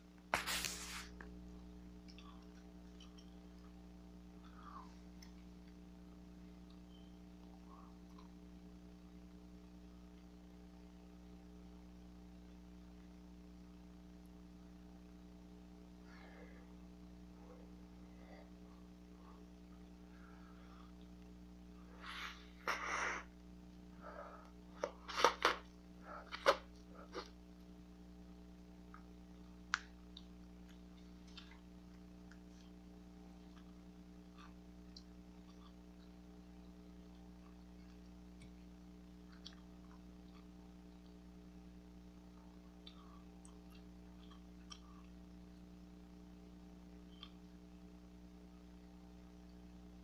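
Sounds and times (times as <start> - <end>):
low electrical hum: 0.0 - 50.0
wet mouth clicks chewing gum: 37.0 - 41.3, 42.7 - 45.2.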